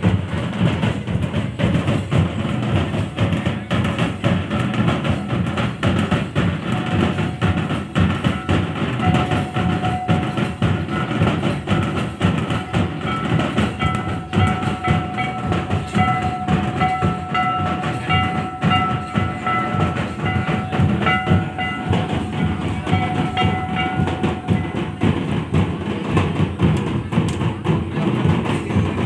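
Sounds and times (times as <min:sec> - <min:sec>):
barrel hand drums beaten fast: 0:00.0 - 0:29.0
high melody of long held notes: 0:12.5 - 0:25.2.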